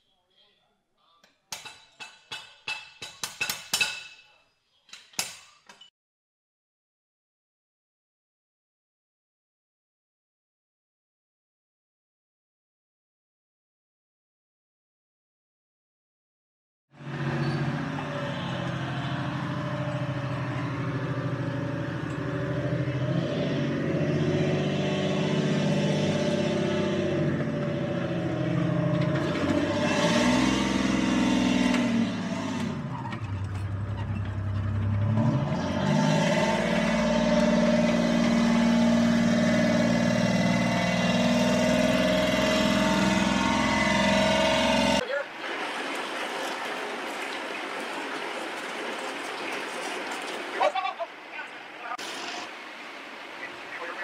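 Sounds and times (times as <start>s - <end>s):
tank engine running: 17.0s - 45.0s.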